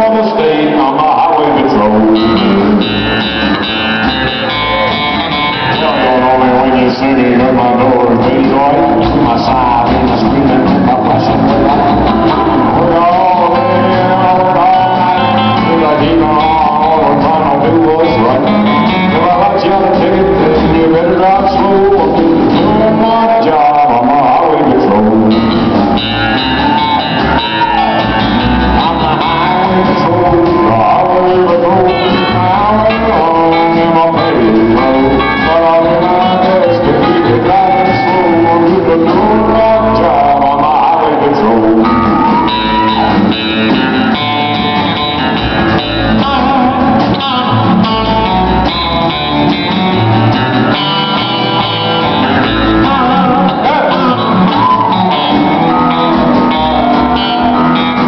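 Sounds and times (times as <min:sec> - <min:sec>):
live country music: 0:00.0 - 0:58.0.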